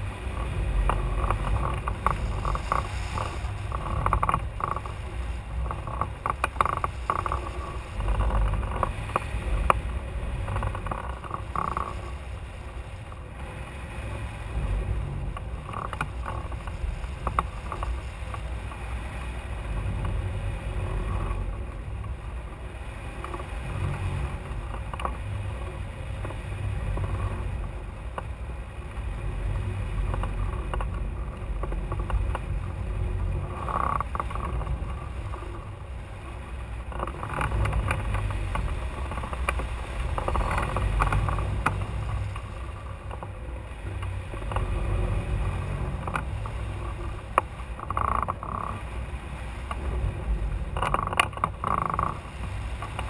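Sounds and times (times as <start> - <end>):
wind buffeting: 0.0 - 53.0
rattling clicks: 0.3 - 12.1, 30.0 - 35.8, 36.8 - 48.8, 50.6 - 53.0.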